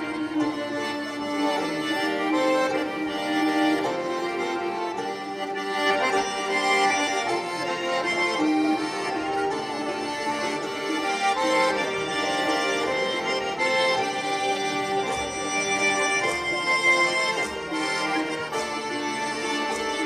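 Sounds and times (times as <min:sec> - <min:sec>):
accordion melody: 0:00.0 - 0:20.0
folk dance music: 0:00.0 - 0:20.0.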